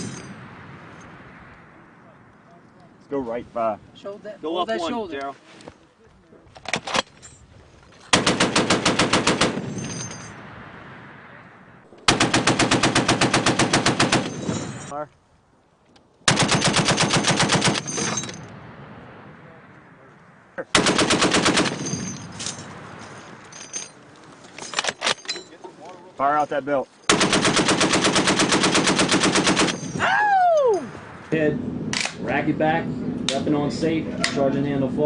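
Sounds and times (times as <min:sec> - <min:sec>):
machine gun automatic fire: 0:08.1 - 0:10.2, 0:12.1 - 0:14.6, 0:16.3 - 0:18.3, 0:20.7 - 0:22.3, 0:27.1 - 0:29.9
gunfire echo: 0:08.1 - 0:14.7, 0:20.8 - 0:23.4.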